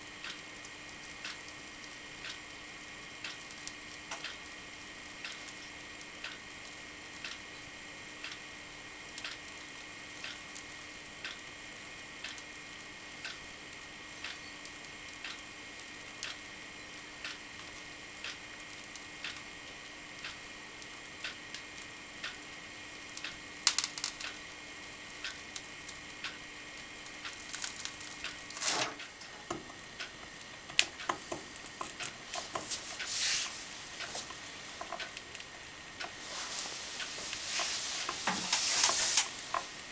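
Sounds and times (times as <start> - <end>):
clicks and crackling: 23.1 - 24.4, 25.1 - 33.1, 34.0 - 36.2.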